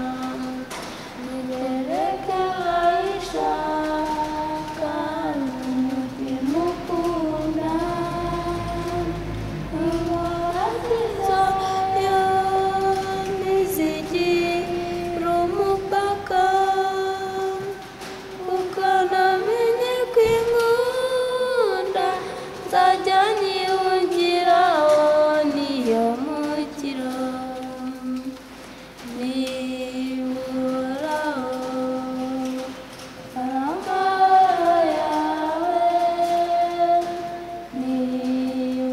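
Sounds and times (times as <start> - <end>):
young voices singing unaccompanied: 0.0 - 38.9.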